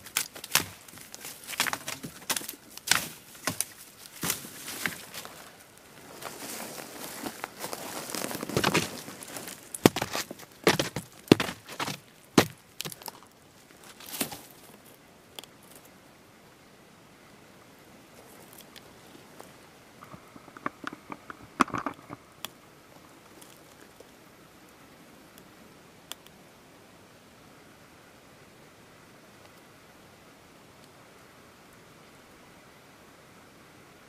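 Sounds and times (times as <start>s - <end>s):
dry twigs snapping: 0.0s - 5.6s, 7.4s - 14.6s.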